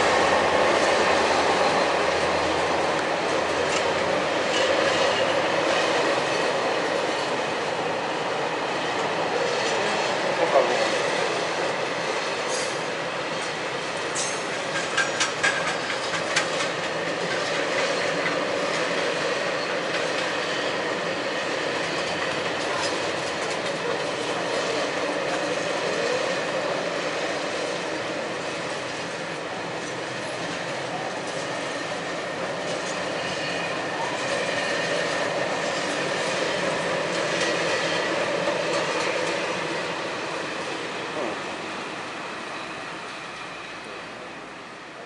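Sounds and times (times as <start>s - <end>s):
train wheels on rail: 0.0s - 45.0s.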